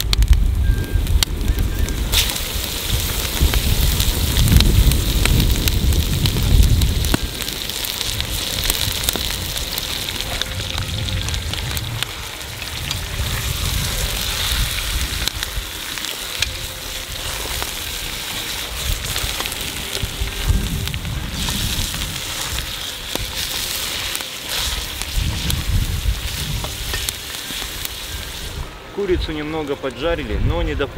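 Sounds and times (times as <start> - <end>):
low rumble: 0.0 - 28.8
chicken sizzling in butter: 0.0 - 29.2
crackles: 0.0 - 30.9.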